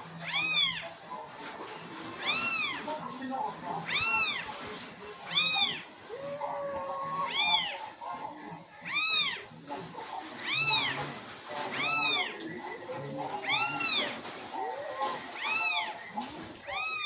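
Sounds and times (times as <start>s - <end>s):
high-pitched kitten meows: 0.2s - 0.8s, 3.9s - 4.4s, 8.9s - 9.4s, 11.8s - 12.3s, 16.6s - 17.0s.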